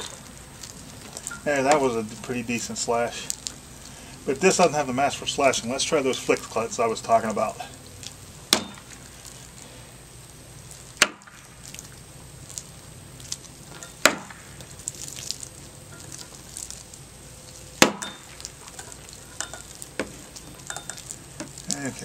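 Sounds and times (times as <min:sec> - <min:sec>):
blade smacking water jug: 0:11.0 - 0:11.5, 0:14.0 - 0:14.6, 0:17.8 - 0:18.5.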